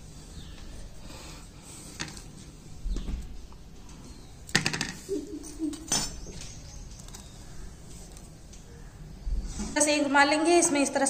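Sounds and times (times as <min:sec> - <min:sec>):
metal tongs clinking on pan: 0:05.8 - 0:06.2.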